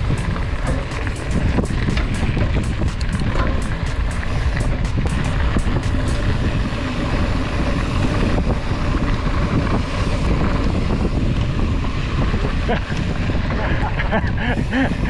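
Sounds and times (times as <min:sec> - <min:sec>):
tyres rumbling on dirt track: 0:00.0 - 0:15.0
wind on camera microphone: 0:00.0 - 0:15.0.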